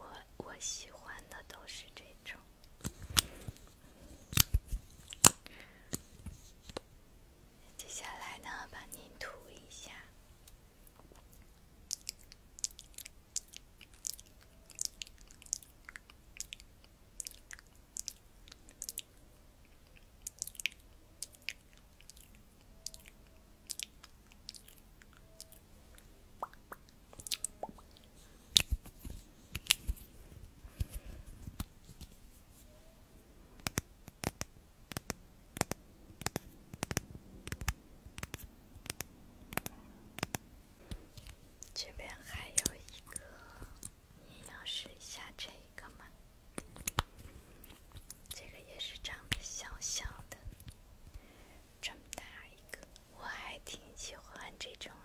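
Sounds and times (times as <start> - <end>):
close-miked clicks and crackles: 2.6 - 6.9, 10.4 - 30.1, 33.6 - 51.3.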